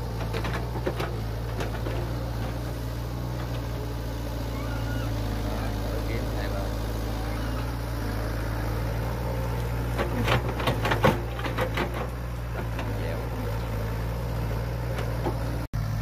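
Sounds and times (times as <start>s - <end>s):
excavator diesel engine running: 0.0s - 16.0s
bucket clanks and knocks: 10.0s - 13.0s.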